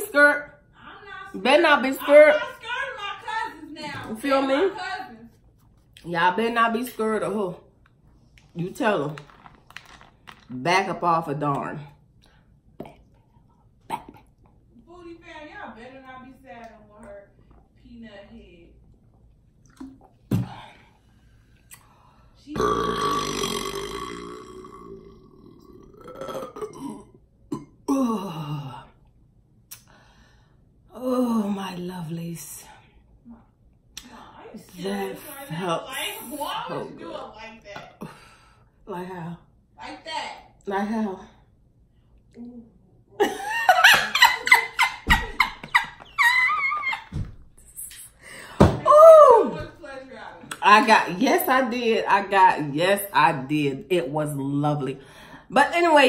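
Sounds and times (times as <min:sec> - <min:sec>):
woman burping loudly: 0:22.5 - 0:28.8
woman laughing: 0:43.2 - 0:47.3.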